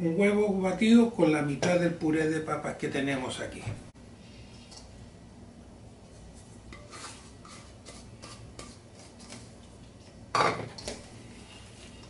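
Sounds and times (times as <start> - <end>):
utensil clinking and scraping bowl: 6.4 - 12.0.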